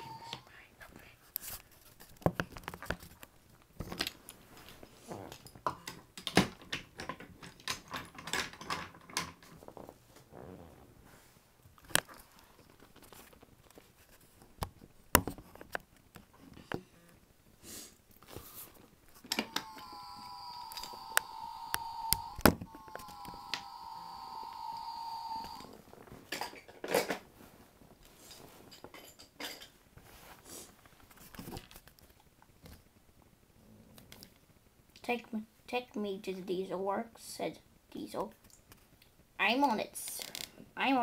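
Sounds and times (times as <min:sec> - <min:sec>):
steady high whine: 0:19.3 - 0:26.0.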